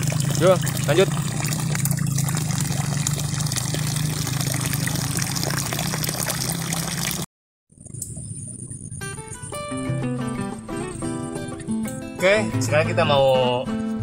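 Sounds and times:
running water rushing: 0.0 - 7.3.

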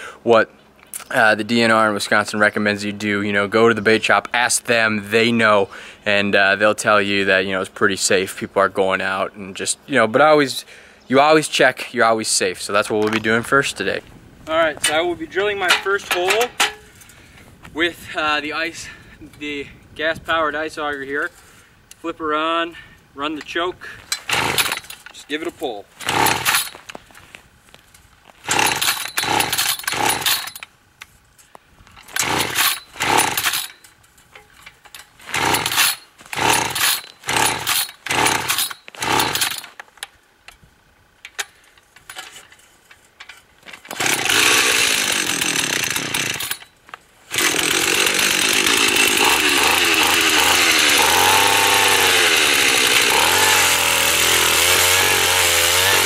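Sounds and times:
starter cord pulls: 24.1 - 25.2, 26.0 - 27.0, 28.5 - 30.7, 32.0 - 40.1, 43.3 - 46.7, 47.3 - 56.0
small engine running: 26.0 - 26.7, 28.4 - 30.6, 32.1 - 33.8, 35.3 - 39.6, 43.9 - 46.6, 47.3 - 56.0.

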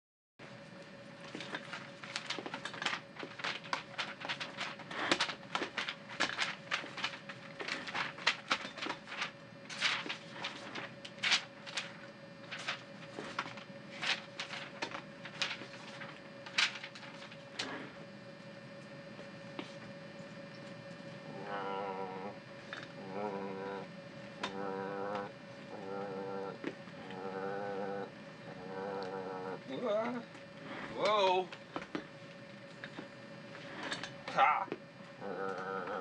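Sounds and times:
faint hum: 0.4 - 36.0
paper rustling and shuffling: 1.2 - 18.0.

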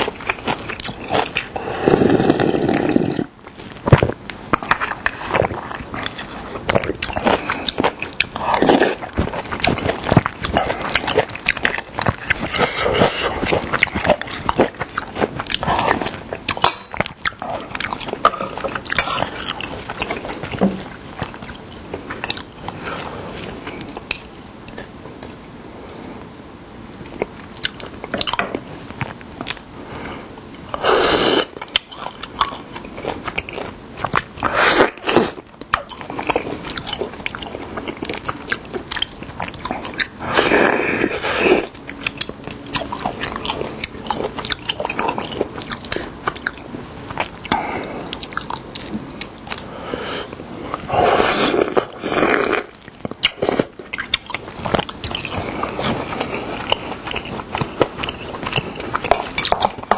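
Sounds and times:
chewing and crunching food: 0.0 - 25.5, 26.9 - 59.9
slurping soup from spoon: 1.4 - 3.4.

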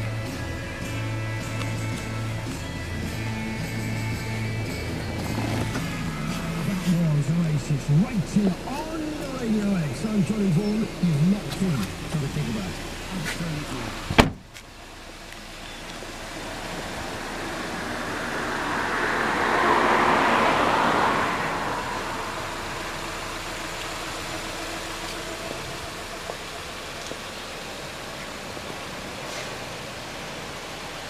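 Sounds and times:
background traffic: 0.0 - 31.0
vehicle passing: 2.9 - 14.2, 16.1 - 26.5.

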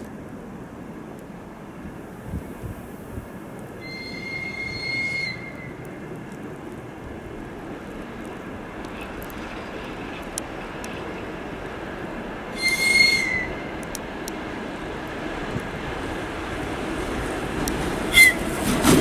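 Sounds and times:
freight train rumble: 0.0 - 19.0
locomotive whistle: 3.8 - 5.8, 12.5 - 13.7, 18.1 - 18.5.

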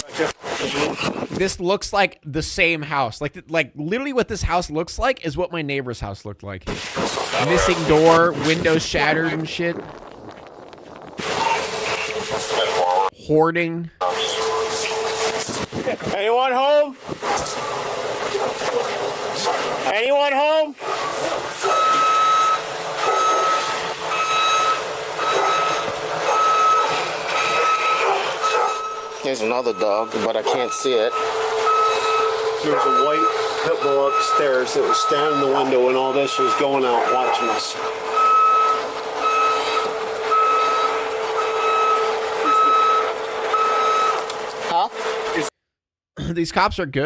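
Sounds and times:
truck reverse alarm beeping: 21.6 - 44.3.

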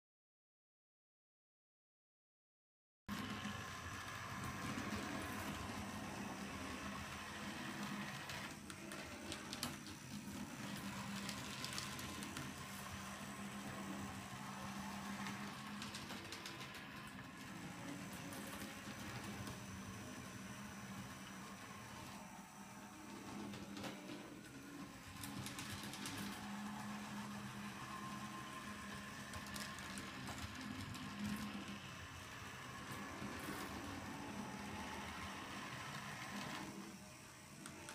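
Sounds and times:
wheels clicking over track: 3.1 - 20.2
model train motor hum: 3.1 - 37.9.

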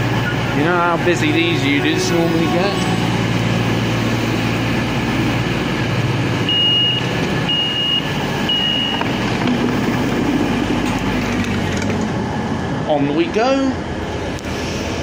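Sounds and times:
diesel engines idling hum: 0.0 - 15.0
short high door beeps: 6.5 - 9.1.

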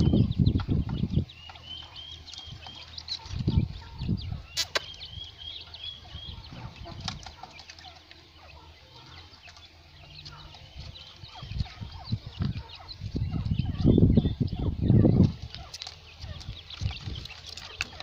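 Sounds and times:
quail chirping: 0.0 - 18.0.

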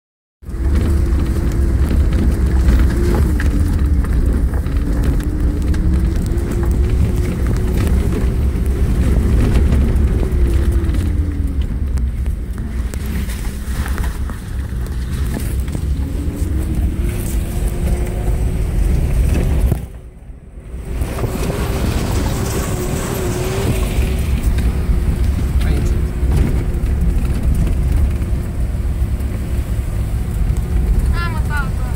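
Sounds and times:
vehicle engine and road rumble: 0.4 - 31.9
knocks and rattles: 21.0 - 28.8.

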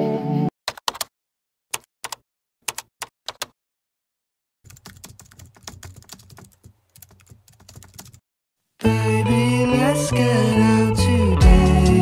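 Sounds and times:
computer keyboard typing: 0.7 - 1.1, 1.7 - 3.6, 4.7 - 8.2.

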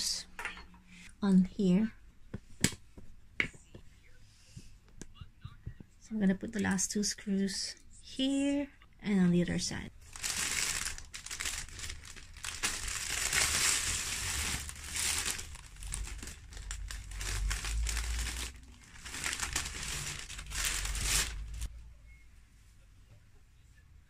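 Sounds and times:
plastic wrapping crinkling: 10.0 - 21.7.

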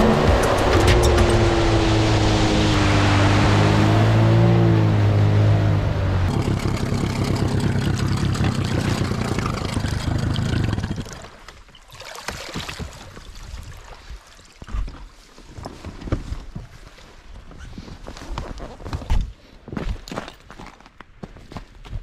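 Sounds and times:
outboard motor running: 0.0 - 11.5
water rushing along hull: 0.0 - 15.2.

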